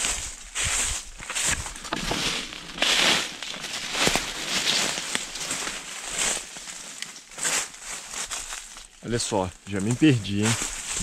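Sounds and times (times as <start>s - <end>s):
footsteps on dry leaves: 0.0s - 11.0s
leaves and twigs rustling: 0.0s - 11.0s.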